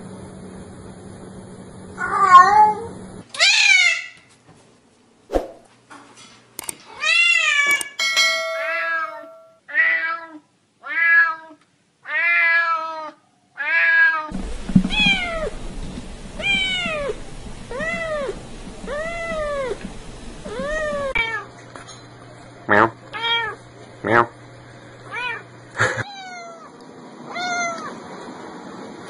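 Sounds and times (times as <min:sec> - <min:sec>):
cats meowing: 0:26.0 - 0:28.0.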